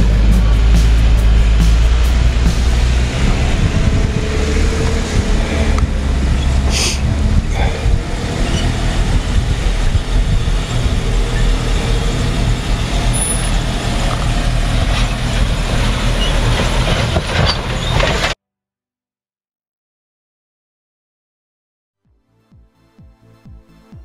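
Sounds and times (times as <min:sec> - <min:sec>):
vehicle engine rumbling: 0:00.0 - 0:18.4.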